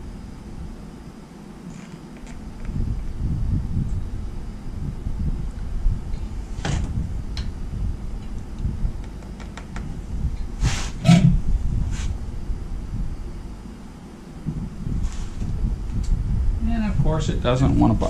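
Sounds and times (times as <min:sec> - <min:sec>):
steady low rumble: 0:00.0 - 0:18.0
rustling scrapes: 0:10.6 - 0:12.2, 0:14.9 - 0:15.5.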